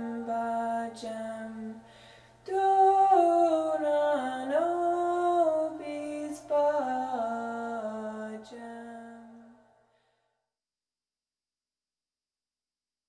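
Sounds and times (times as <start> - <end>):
person singing unaccompanied: 0.0 - 1.8, 2.4 - 9.6.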